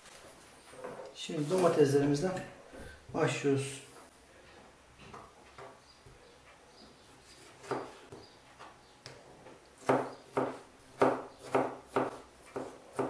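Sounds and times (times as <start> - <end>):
knife cutting on a cutting board: 7.3 - 8.2.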